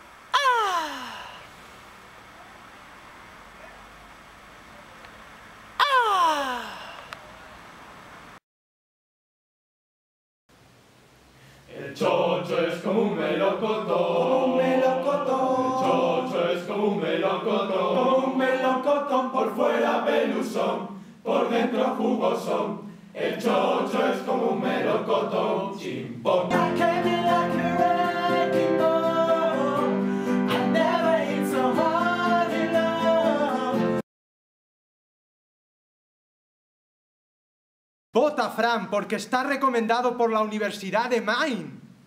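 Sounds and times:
choir singing: 0:11.7 - 0:34.0
man singing into a microphone: 0:26.4 - 0:34.0.

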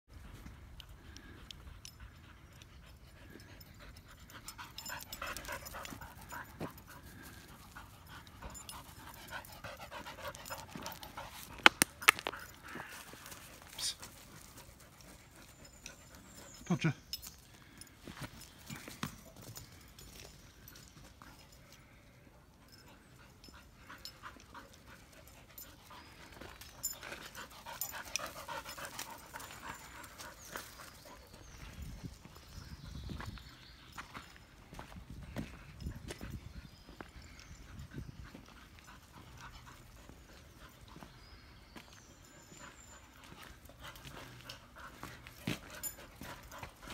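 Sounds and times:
dog panting: 0:01.0 - 0:16.6, 0:22.6 - 0:31.6, 0:42.5 - 0:46.9
dog panting hard: 0:01.8 - 0:11.6.

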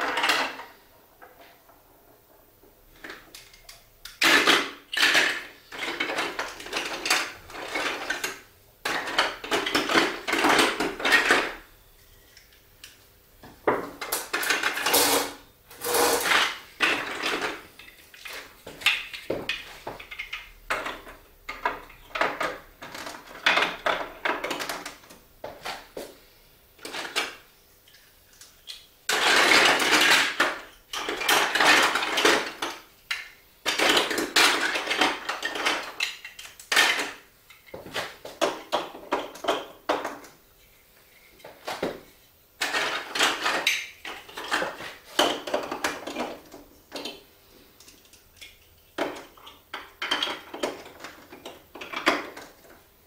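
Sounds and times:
marbles rolling down plastic run: 0:15.8 - 0:17.4.

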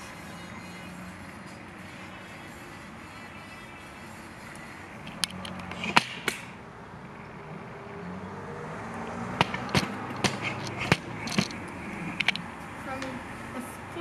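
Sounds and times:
camera handling clicks and taps: 0:05.1 - 0:06.2.

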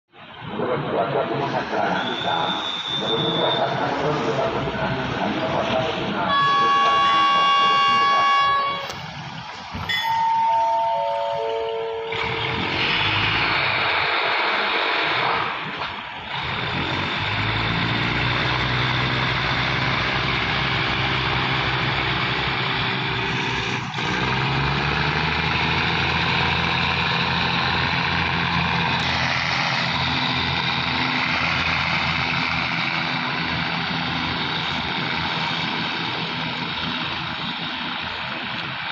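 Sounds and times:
diesel train engines running: 0:00.1 - 0:38.9.

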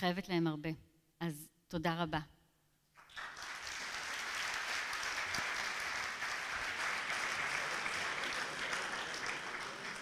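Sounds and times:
large audience applauding: 0:03.0 - 0:10.0.

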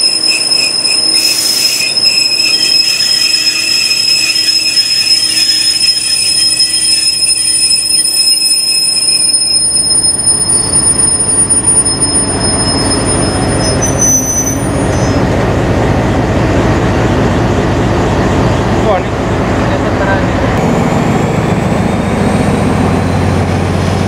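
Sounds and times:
train wheels squealing on rails: 0:00.0 - 0:15.3
low train rumble: 0:00.0 - 0:24.0.

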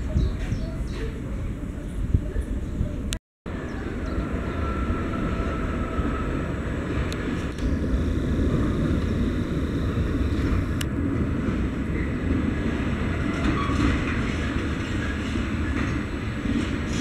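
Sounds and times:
diesel locomotive engine rumble: 0:00.0 - 0:17.0
train wheels rolling on rails: 0:03.5 - 0:17.0.

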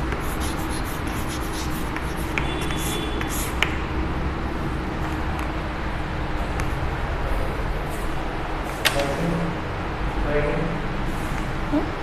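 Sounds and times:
chalk scratching on a chalkboard: 0:00.0 - 0:03.8
chalk tapping: 0:00.0 - 0:03.8.

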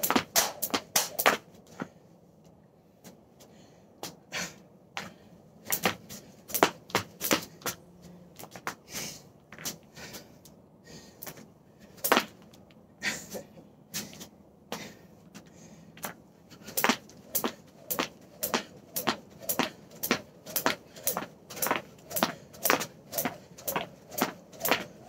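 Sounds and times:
jump rope slapping wooden floor: 0:00.0 - 0:01.4, 0:05.7 - 0:07.5, 0:16.8 - 0:25.0.

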